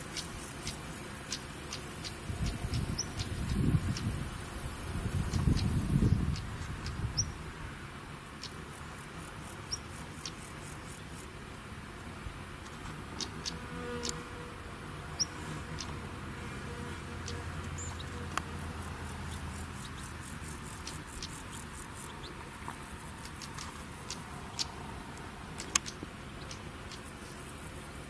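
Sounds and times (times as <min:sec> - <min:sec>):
insects ticking: 0:00.0 - 0:07.4, 0:08.2 - 0:11.4, 0:12.6 - 0:14.3, 0:15.1 - 0:28.0
sharp clicks: 0:25.6 - 0:27.0.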